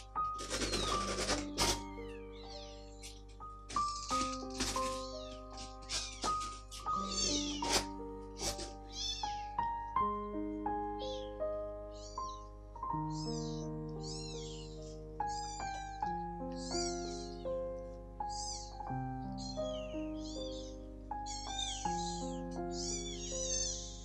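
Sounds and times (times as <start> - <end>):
background music: 0.0 - 24.0
kitten mewing: 3.8 - 9.4, 13.1 - 14.7, 22.7 - 23.9.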